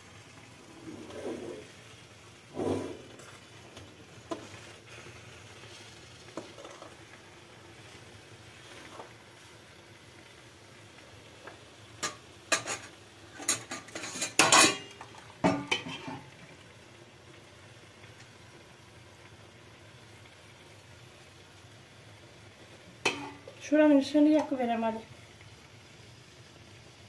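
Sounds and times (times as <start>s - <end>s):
faint steady hiss: 0.0s - 27.0s
metal ladle clinking on pot: 12.0s - 16.2s, 23.1s - 23.4s.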